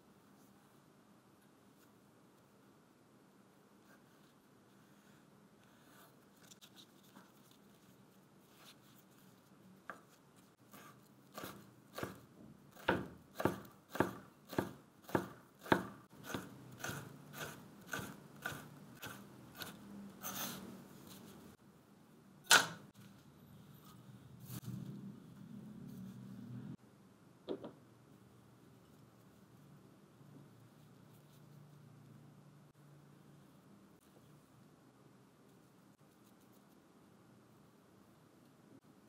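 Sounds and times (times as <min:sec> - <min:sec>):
knife chopping on wooden board: 0:10.8 - 0:19.8.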